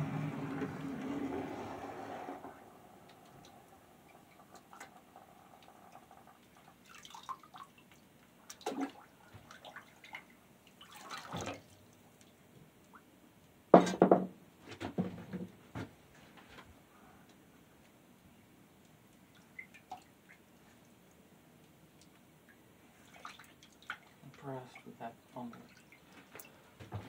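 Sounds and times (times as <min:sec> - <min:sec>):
water splashes and drips: 0:03.0 - 0:13.1, 0:18.8 - 0:26.6.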